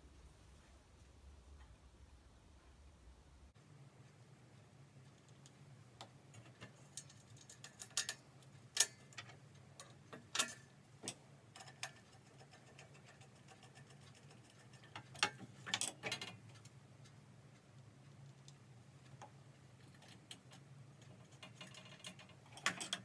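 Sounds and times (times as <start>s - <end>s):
metal parts clicking on steel workbench: 6.4s - 8.2s, 8.8s - 16.4s, 19.8s - 23.0s.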